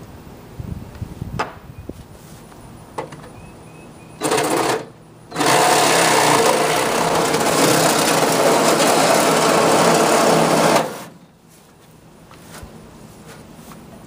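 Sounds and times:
reciprocating saw cutting metal: 4.2 - 11.2.

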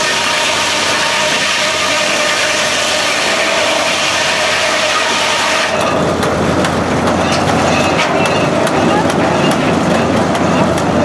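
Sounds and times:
saw cutting through log: 0.0 - 6.1
sawmill engine running: 0.0 - 11.0.

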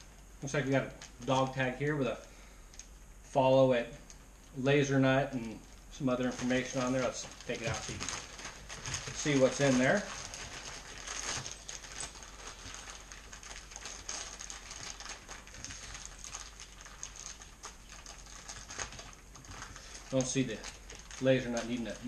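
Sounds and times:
plastic bag crinkling: 0.0 - 2.8, 4.1 - 22.0.

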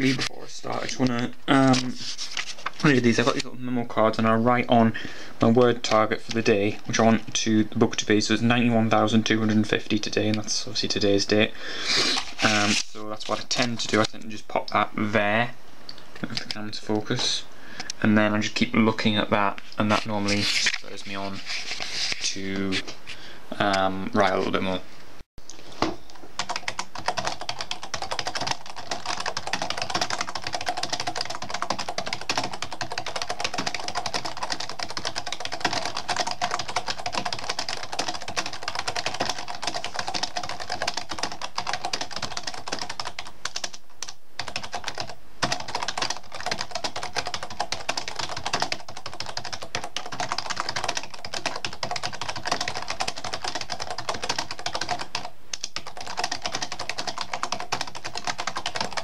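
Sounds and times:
fast typing on keyboard: 12.0 - 14.2, 26.4 - 59.0.

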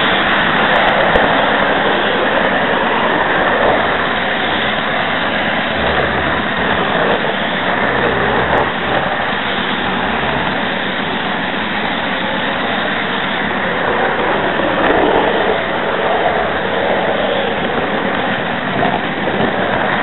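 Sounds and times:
model train motor and wheels: 0.0 - 20.0.

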